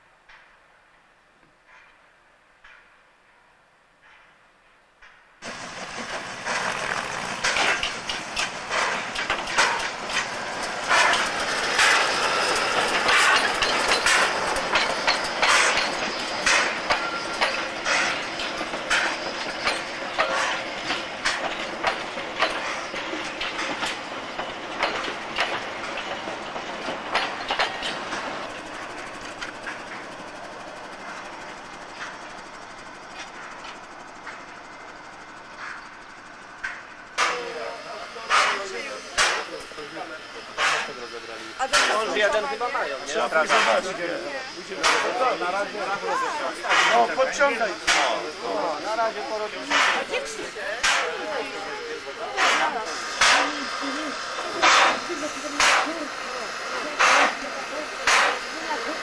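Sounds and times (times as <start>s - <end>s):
steam train passing: 0.0s - 59.0s
wheels clicking over rail joints: 4.0s - 59.0s.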